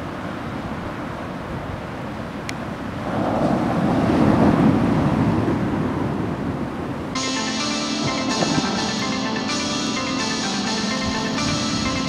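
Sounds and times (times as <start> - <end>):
wind buffeting microphone: 0.6 - 7.2
surf breaking on beach: 3.0 - 6.8.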